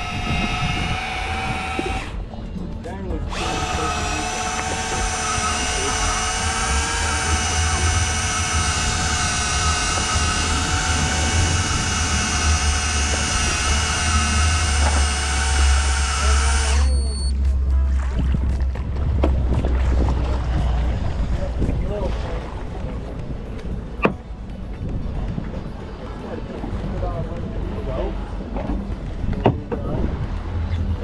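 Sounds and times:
fishing reel motor whine: 0.0 - 2.2, 3.3 - 17.4
low rumble: 0.0 - 31.0.

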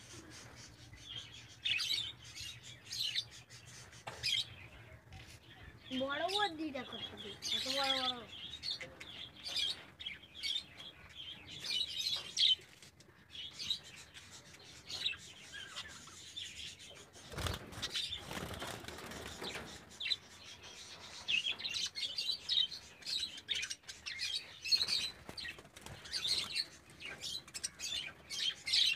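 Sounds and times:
budgerigars chirping and chattering: 0.0 - 12.6, 13.3 - 28.9
wings flapping: 17.3 - 19.8.

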